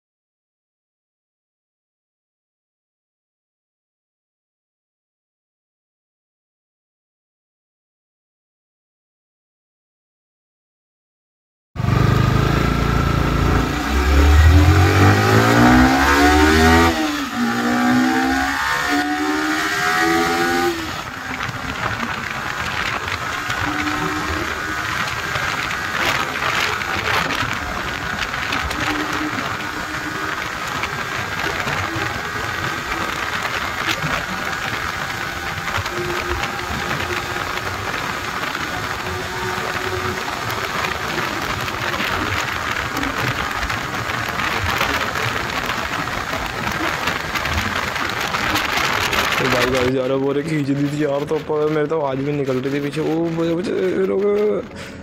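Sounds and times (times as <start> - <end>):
motorcycle engine at full throttle: 11.8 - 55.0.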